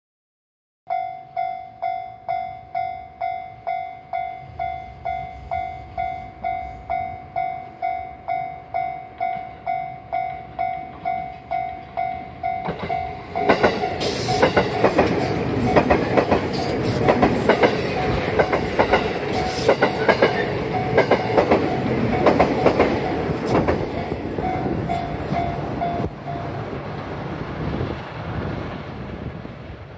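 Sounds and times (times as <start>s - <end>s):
train passing at speed: 2.3s - 29.9s
wheels clacking over rail joints: 10.8s - 27.0s.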